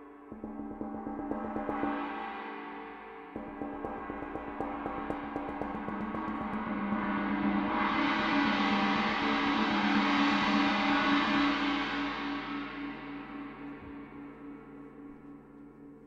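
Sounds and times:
cymbal roll with mallets: 0.0s - 15.2s.

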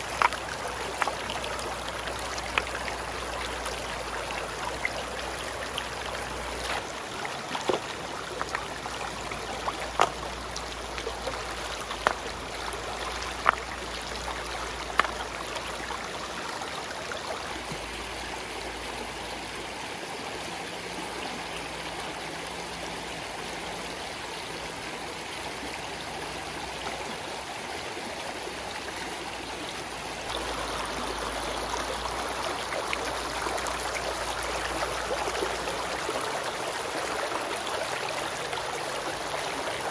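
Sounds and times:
stones knocking: 0.0s - 1.2s, 6.6s - 8.7s, 9.5s - 10.3s, 11.7s - 12.4s, 13.2s - 13.7s, 14.8s - 15.2s
stream water running over rocks: 0.0s - 39.9s.

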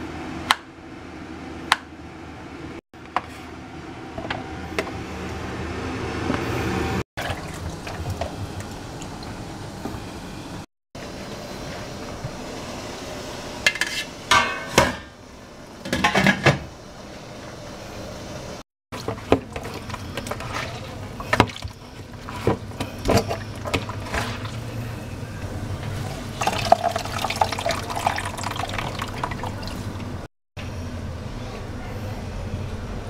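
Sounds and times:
liquid trickling into bowl: 26.4s - 30.0s.

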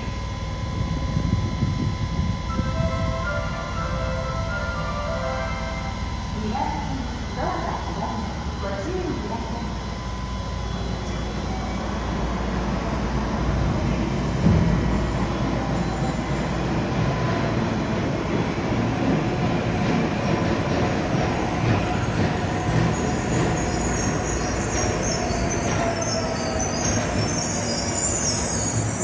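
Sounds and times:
train rumble in underground station: 0.0s - 29.0s
high wheel squeal: 23.0s - 29.0s.

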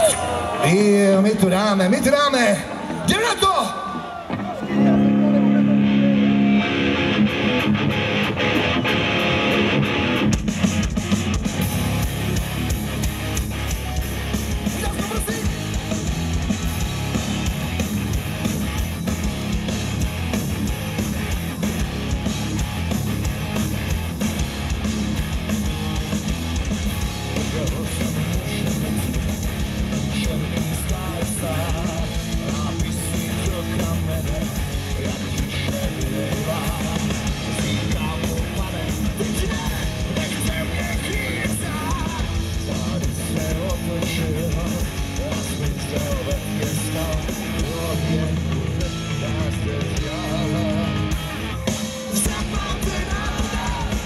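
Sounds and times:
live rock band: 0.0s - 54.0s
person singing: 30.0s - 51.3s, 52.1s - 54.0s.

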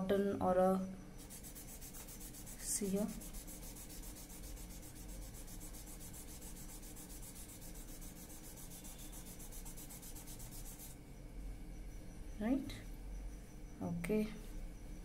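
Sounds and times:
cotton pad rubbing on paper: 1.2s - 11.0s.

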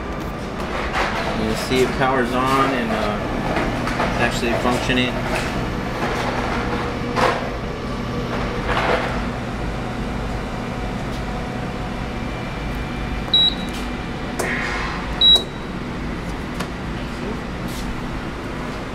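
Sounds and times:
microwave reactor humming: 0.0s - 18.9s
short high keypad beeps: 13.3s - 13.8s, 15.2s - 15.7s.

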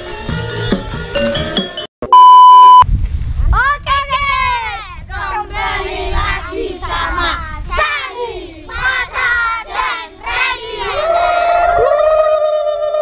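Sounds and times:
children chanting in unison: 5.1s - 11.4s.

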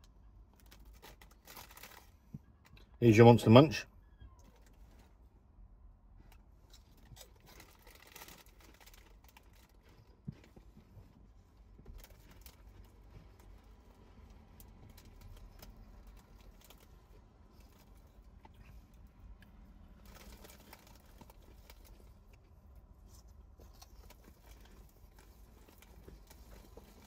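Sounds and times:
corn snacks being chewed: 0.5s - 2.9s, 6.3s - 10.7s, 11.6s - 27.0s.

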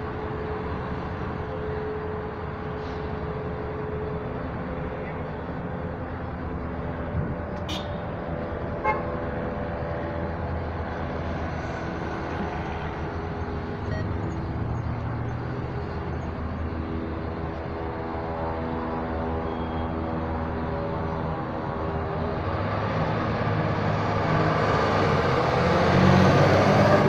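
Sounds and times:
diesel engine droning: 0.0s - 27.0s
traffic passing: 0.0s - 27.0s.

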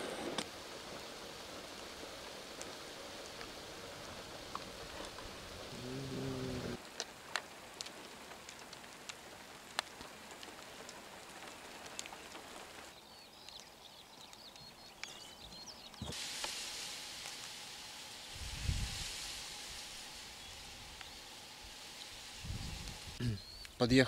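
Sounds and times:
steady hiss: 0.0s - 24.0s
light rain dripping: 0.4s - 24.0s
faint high bird chirps: 13.0s - 16.1s.

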